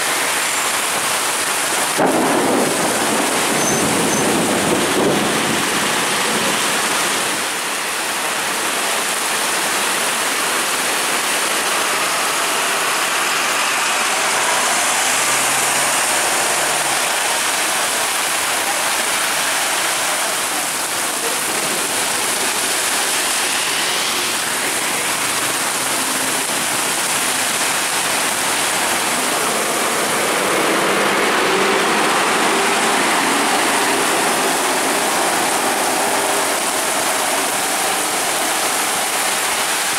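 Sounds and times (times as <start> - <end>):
heavy rain on road: 0.0 - 39.9
tyres on flooded road: 0.0 - 39.9
bus engines pulling away: 11.4 - 39.9.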